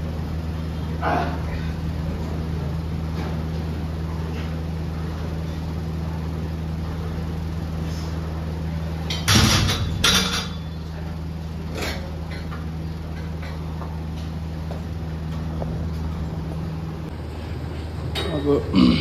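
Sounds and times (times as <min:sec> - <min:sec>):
steady low hum: 0:00.0 - 0:19.0
barbell clanking with rattle: 0:09.1 - 0:10.7.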